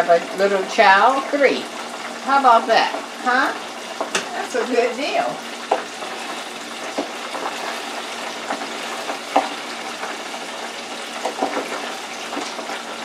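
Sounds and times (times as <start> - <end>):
oil sizzling in deep fryer: 0.0 - 13.0
utensil knocking against fryer: 3.9 - 4.5, 5.6 - 6.2, 6.9 - 10.2, 11.1 - 12.8.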